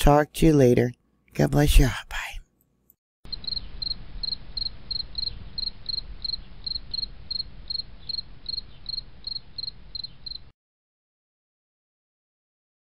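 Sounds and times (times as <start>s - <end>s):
crickets chirping: 3.3s - 10.5s.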